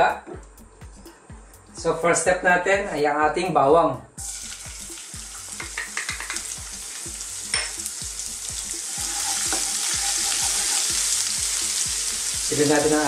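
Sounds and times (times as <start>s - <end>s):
garlic sizzling in hot oil: 4.2s - 13.0s
wooden spoon stirring: 9.0s - 10.9s.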